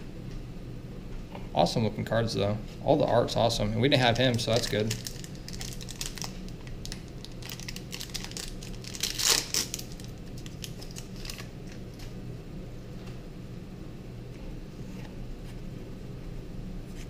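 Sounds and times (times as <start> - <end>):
foil wrapper crinkling: 4.0 - 12.2
foil wrapper ripping: 4.0 - 12.2.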